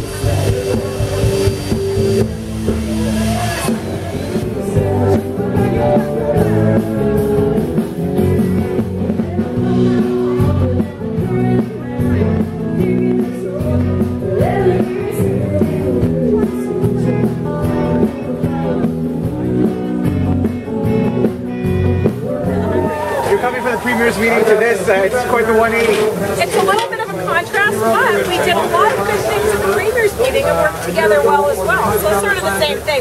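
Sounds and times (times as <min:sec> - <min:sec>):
live rock band playing: 0:00.0 - 0:33.0
person singing: 0:04.2 - 0:23.1.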